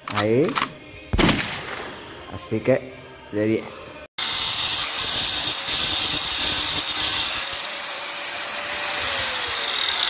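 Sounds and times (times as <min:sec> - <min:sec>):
angle grinder cutting brick: 0:04.2 - 0:10.0.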